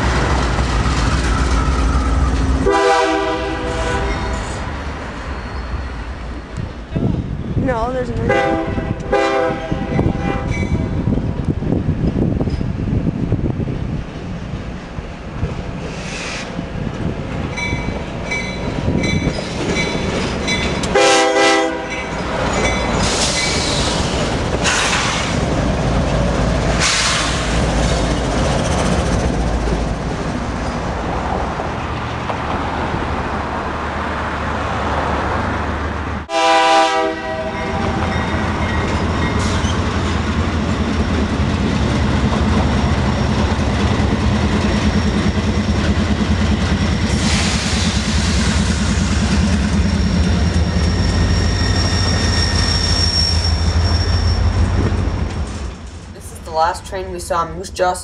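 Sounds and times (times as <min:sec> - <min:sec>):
diesel locomotive engines: 0:00.0 - 0:58.0
train horn blasts: 0:02.6 - 0:04.6, 0:08.3 - 0:10.6, 0:20.9 - 0:22.0, 0:36.3 - 0:38.2.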